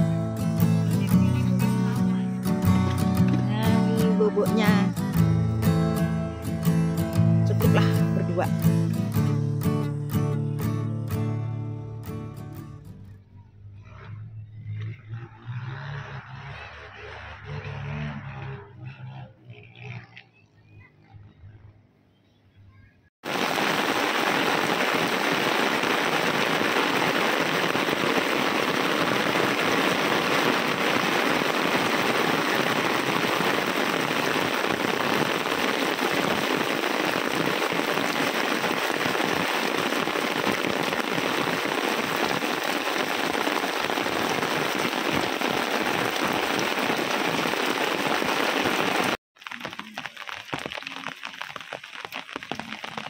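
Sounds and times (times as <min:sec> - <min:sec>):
heavy rain pouring: 0:00.0 - 0:09.8, 0:23.2 - 0:53.0.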